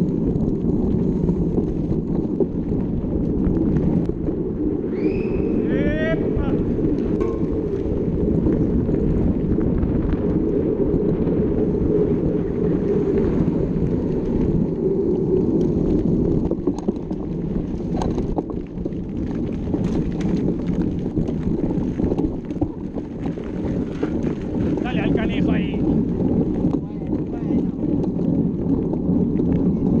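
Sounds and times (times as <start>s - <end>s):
wind rushing over microphone: 0.0s - 30.0s
bike knocks and rattles: 6.9s - 11.2s, 15.6s - 30.0s.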